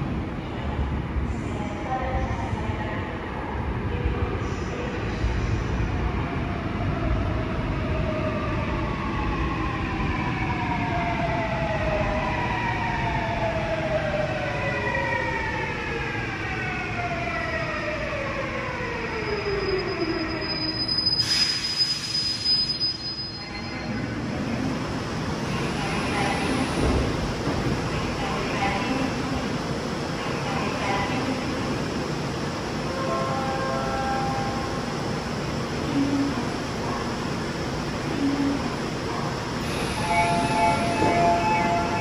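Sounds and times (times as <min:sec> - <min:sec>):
electric train braking: 0:39.6 - 0:42.0.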